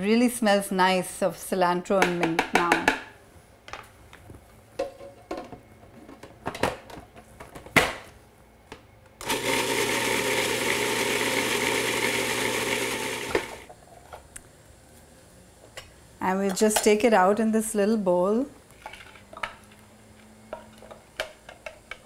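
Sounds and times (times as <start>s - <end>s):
food processor motor running: 9.2s - 13.7s.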